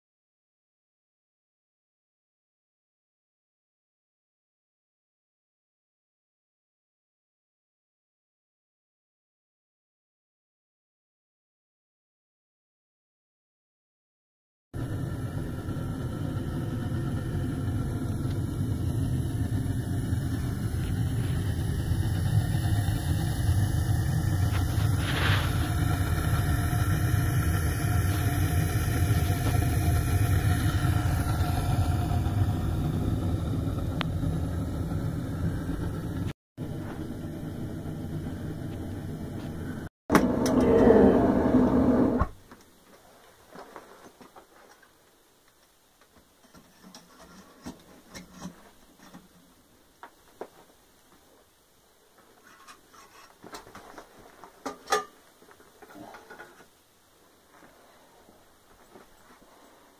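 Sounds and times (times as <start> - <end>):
burner roaring: 14.8 - 42.3.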